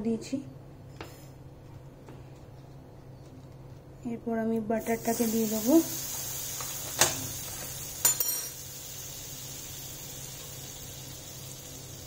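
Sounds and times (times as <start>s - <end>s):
butter sizzling faintly: 4.8s - 12.0s.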